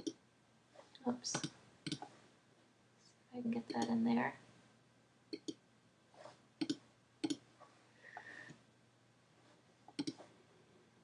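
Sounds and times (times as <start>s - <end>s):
computer mouse clicking: 1.3s - 2.1s, 5.3s - 5.6s, 6.6s - 7.4s, 9.9s - 10.2s.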